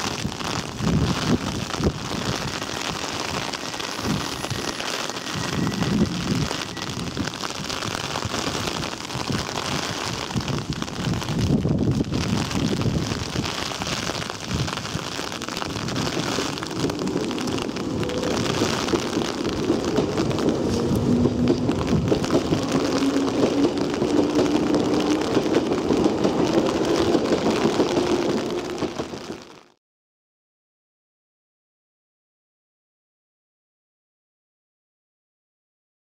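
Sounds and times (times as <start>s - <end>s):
heavy rain hissing: 0.0s - 29.6s
train motors whining: 16.5s - 25.5s.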